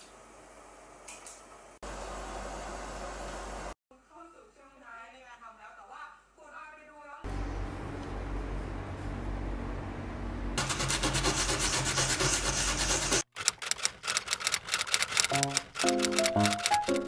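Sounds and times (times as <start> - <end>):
resin rubbed on sandpaper: 10.6 - 13.3
light music with plucked notes: 15.3 - 17.0.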